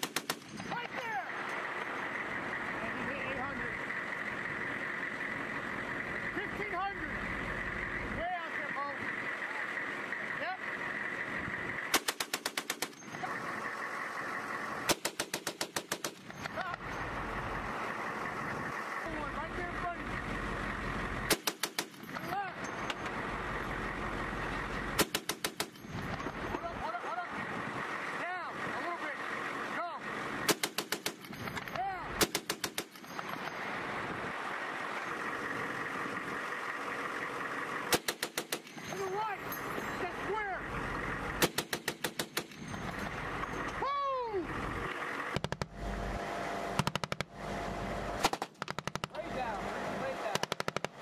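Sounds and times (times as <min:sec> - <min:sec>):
machine gun burst: 0:00.0 - 0:00.7, 0:14.9 - 0:16.4
machine gun bursts: 0:00.0 - 0:00.7, 0:11.9 - 0:13.1, 0:14.9 - 0:16.4, 0:30.5 - 0:31.5, 0:32.2 - 0:33.2, 0:41.4 - 0:42.8.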